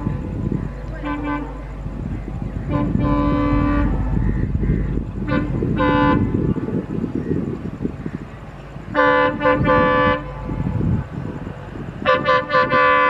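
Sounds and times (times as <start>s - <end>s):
train rumbling: 0.0s - 13.0s
train horn: 1.0s - 1.7s, 2.6s - 4.2s, 5.2s - 6.6s, 8.9s - 10.8s, 12.0s - 13.0s.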